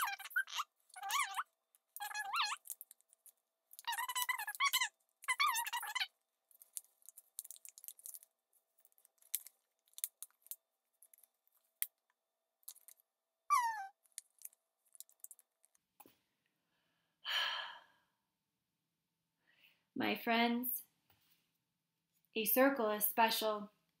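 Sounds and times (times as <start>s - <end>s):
brief squeaky sounds: 0.0s - 2.6s, 13.5s - 13.9s
paper crinkling: 0.0s - 11.8s
person sighing: 17.2s - 18.1s.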